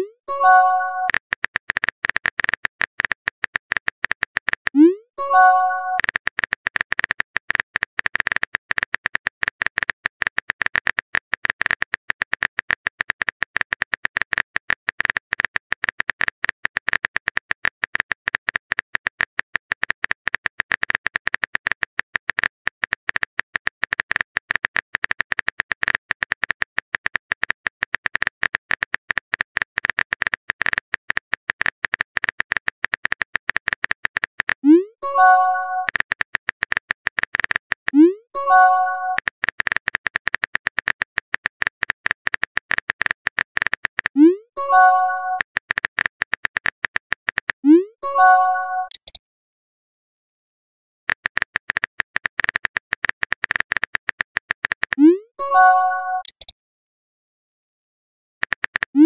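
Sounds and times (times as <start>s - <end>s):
keyboard typing clicks: 0.0s - 49.2s, 51.1s - 56.5s, 58.4s - 59.0s
message-sent chime: 0.3s - 1.1s, 5.2s - 6.0s.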